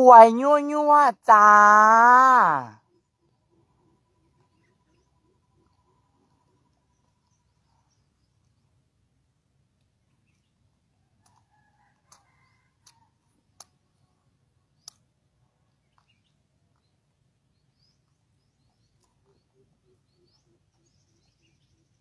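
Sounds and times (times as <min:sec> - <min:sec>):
faint bird chirps: 0:02.8 - 0:08.9, 0:15.6 - 0:22.0.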